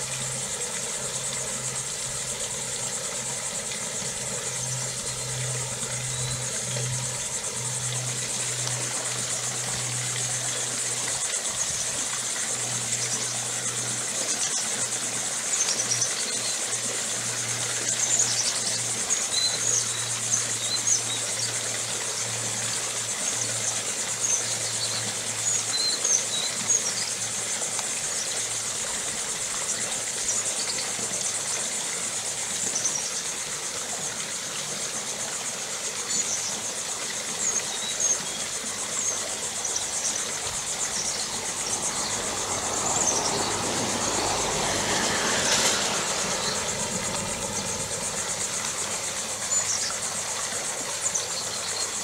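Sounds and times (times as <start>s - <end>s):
steady low hum: 0.0s - 25.7s, 38.2s - 52.0s
swell of noise: 40.7s - 49.2s.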